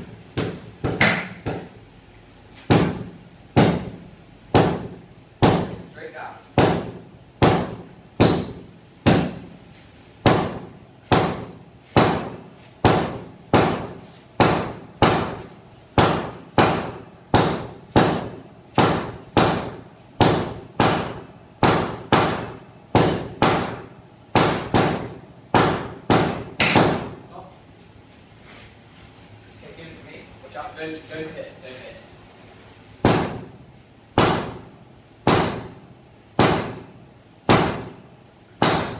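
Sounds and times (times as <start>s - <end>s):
sledgehammers striking steel on anvil: 6.6s - 9.5s.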